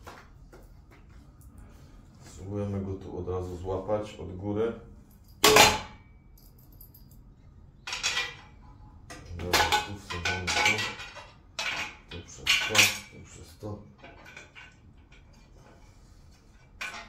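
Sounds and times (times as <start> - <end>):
metal bolts clinking: 5.1 - 13.4
metallic knocks and rattles: 7.8 - 15.6, 16.4 - 17.0.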